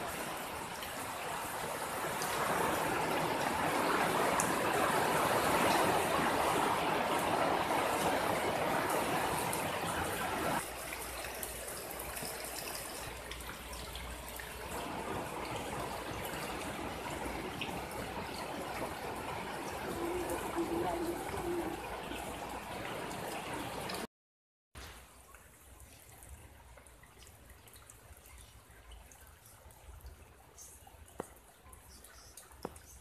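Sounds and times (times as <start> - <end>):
heavy rain on foliage: 0.0 - 24.1.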